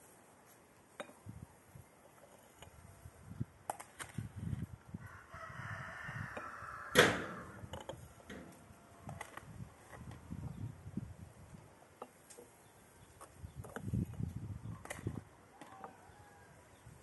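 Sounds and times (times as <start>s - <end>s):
rooster crowing: 5.0s - 7.7s, 15.6s - 16.7s
sharp knock: 6.9s - 7.6s.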